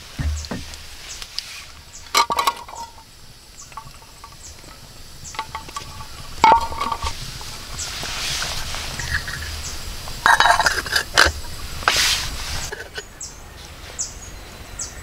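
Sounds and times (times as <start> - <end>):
high falling chirps: 0.0 - 5.5.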